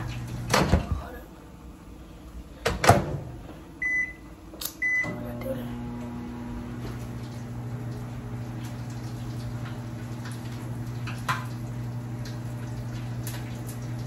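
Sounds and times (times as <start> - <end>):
microwave humming: 0.0 - 14.0
high keypad beeps: 3.8 - 4.2.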